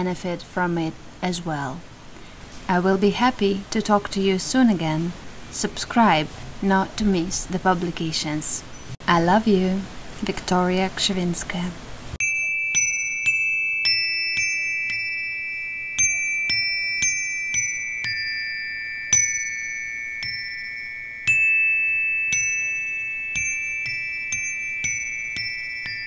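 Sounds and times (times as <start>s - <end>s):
metal chimes ringing: 12.2s - 26.0s.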